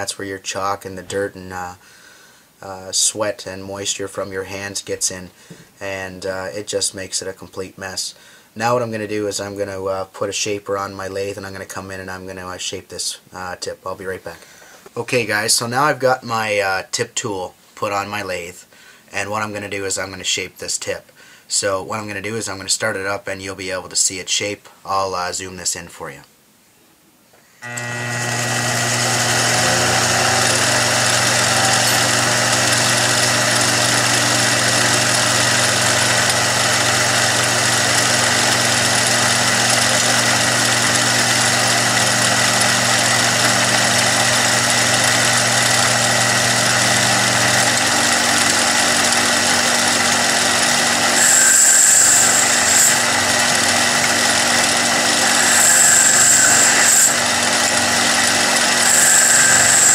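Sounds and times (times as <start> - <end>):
lathe motor humming: 27.6 - 59.9.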